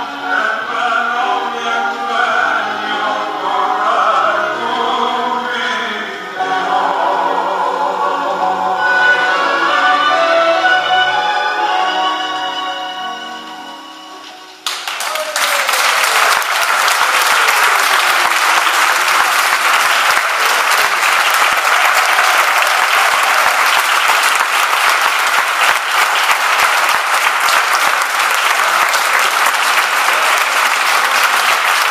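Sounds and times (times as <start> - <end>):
audience applauding: 14.6 - 31.9.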